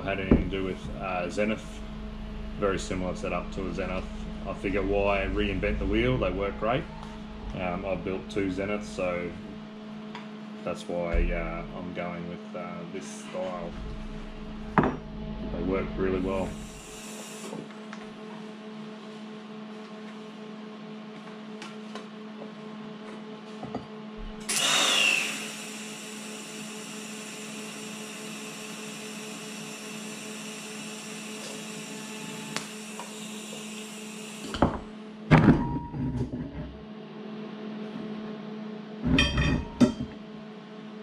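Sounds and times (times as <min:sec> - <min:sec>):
low hum: 0:00.0 - 0:22.8, 0:23.8 - 0:25.0
welding arc buzzing: 0:13.6 - 0:18.0, 0:24.2 - 0:34.9
metal clanks and knocks: 0:13.7 - 0:15.2, 0:34.6 - 0:36.8, 0:39.0 - 0:40.2.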